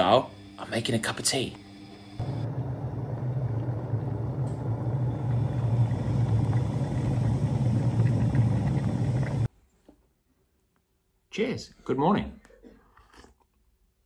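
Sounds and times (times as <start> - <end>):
electric kettle boiling: 0.0 - 9.5.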